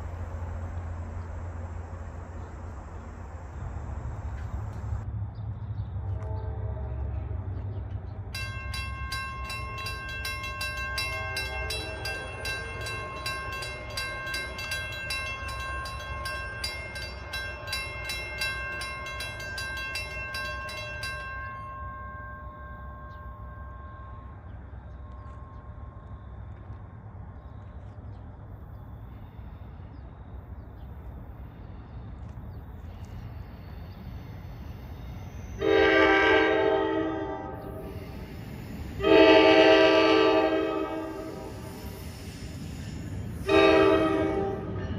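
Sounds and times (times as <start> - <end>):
train horn: 6.0 - 7.5, 35.5 - 37.9, 39.0 - 41.6, 43.4 - 44.9
crossing bells ringing: 8.3 - 26.2.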